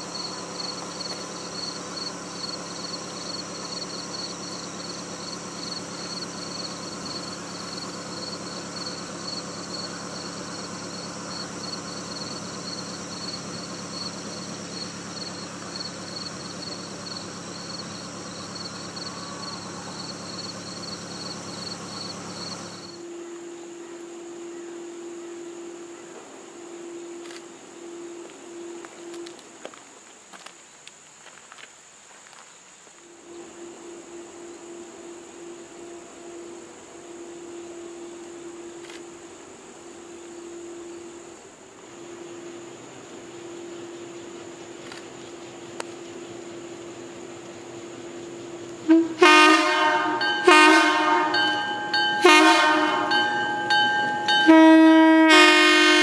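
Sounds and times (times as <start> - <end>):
low pulsing trill: 0.0 - 23.0
steady low hum: 0.0 - 29.8
insects chirping in a trill: 0.0 - 56.0.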